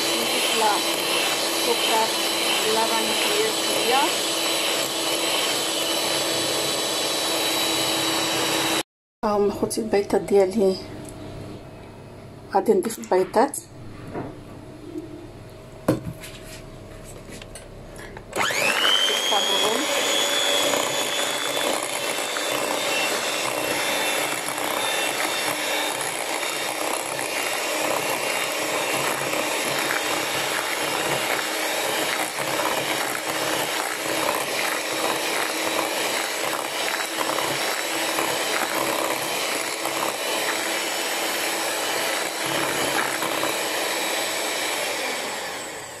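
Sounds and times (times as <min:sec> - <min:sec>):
electric hand mixer whipping batter: 0:00.0 - 0:08.9, 0:18.3 - 0:46.0.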